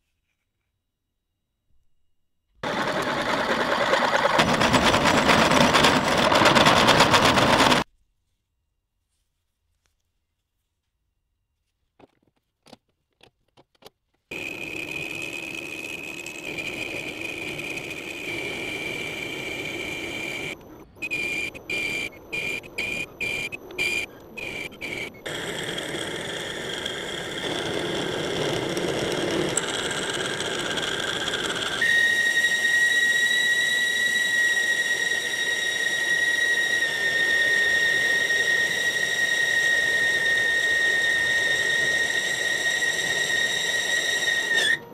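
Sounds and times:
lathe tool high-pitched whine: 2.6s - 7.8s, 14.3s - 44.9s
lathe steady squeal: 2.6s - 7.9s, 14.3s - 44.9s.

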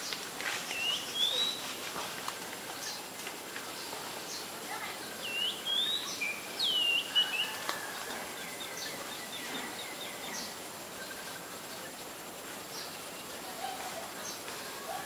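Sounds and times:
steady outdoor hiss: 0.0s - 15.0s
small birds calling: 0.7s - 1.7s, 3.8s - 11.8s.

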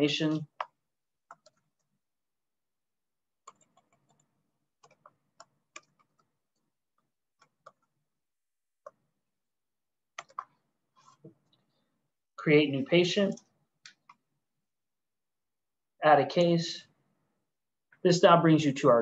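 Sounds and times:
keyboard keys tapping: 0.3s - 1.9s, 3.4s - 6.3s, 10.2s - 10.6s.

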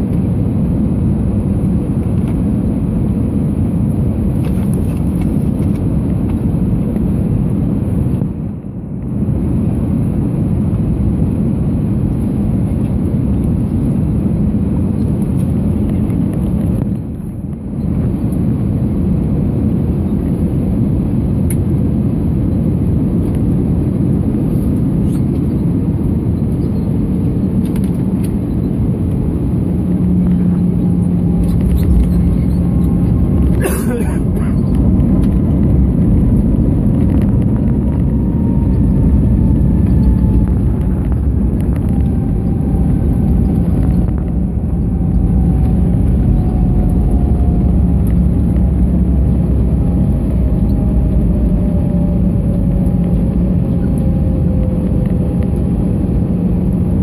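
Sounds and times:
aircraft cabin engine rumble: 0.0s - 57.0s
runway rolling rumble: 0.0s - 57.0s.

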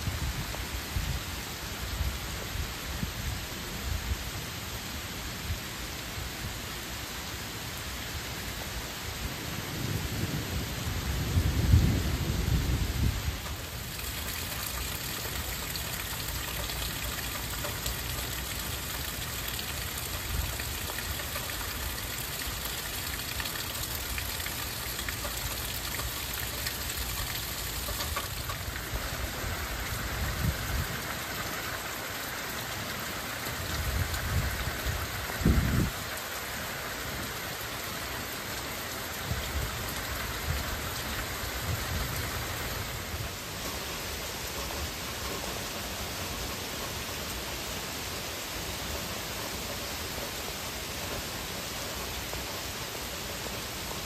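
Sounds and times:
heavy rain hissing: 0.0s - 54.0s
thunder rumbling: 9.6s - 17.5s.

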